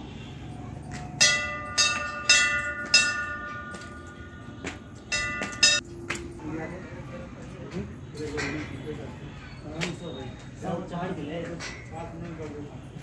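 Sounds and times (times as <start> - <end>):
temple bell ringing: 0.8 - 6.8.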